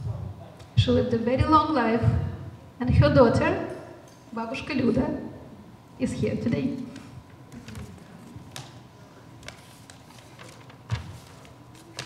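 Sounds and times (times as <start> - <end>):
paper sheets rustling: 7.5 - 8.8, 9.4 - 12.0.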